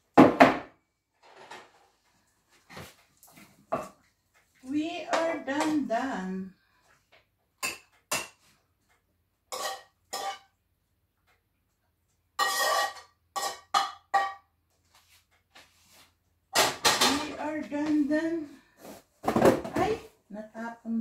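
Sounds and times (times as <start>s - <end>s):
metal spoon scraping a frying pan: 9.5s - 10.5s, 12.4s - 14.4s.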